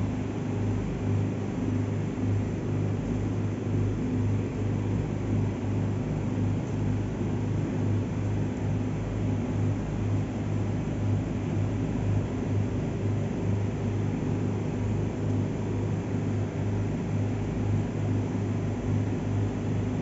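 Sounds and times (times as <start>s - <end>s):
low machine hum: 0.0s - 20.0s.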